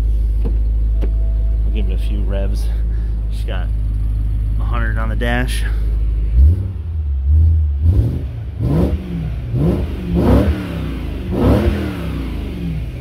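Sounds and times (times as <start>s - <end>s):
car engine revving: 0.0s - 13.0s.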